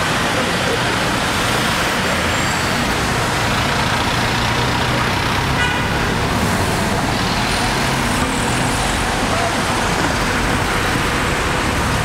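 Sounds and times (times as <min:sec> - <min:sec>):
cars passing on street: 0:00.0 - 0:12.0
car horn toot: 0:05.6 - 0:06.0.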